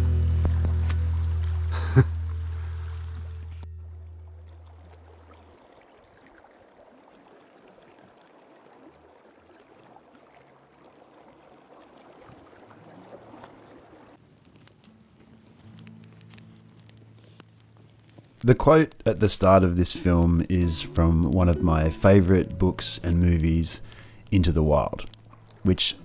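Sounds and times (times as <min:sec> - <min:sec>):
sharp crackles: 0:00.0 - 0:03.7, 0:14.2 - 0:26.0
music: 0:00.0 - 0:04.7, 0:14.8 - 0:18.2, 0:19.3 - 0:26.0.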